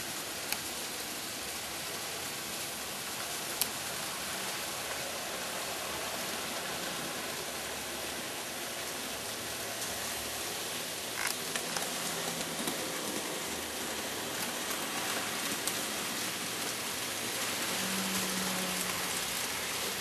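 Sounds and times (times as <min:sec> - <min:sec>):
model train wheels whirring: 0:00.0 - 0:20.0.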